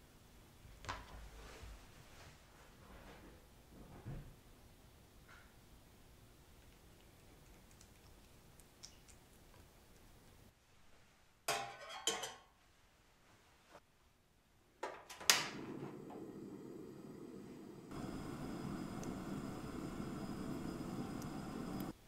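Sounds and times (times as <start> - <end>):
gas burner flame hiss: 15.2 - 22.0
gas stove igniter clicking: 15.2 - 22.0.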